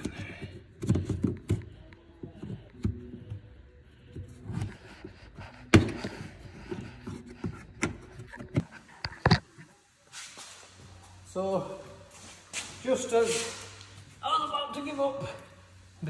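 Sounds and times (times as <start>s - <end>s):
muffled handling: 0.0s - 11.3s.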